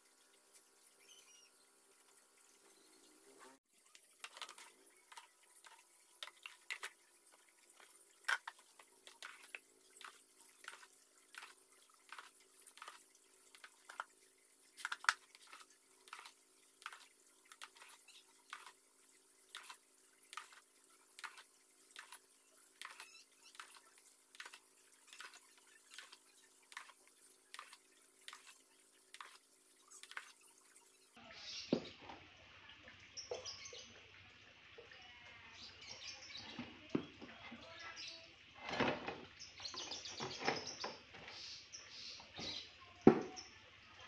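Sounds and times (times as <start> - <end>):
liquid splashing in plastic tub: 3.6 - 31.0.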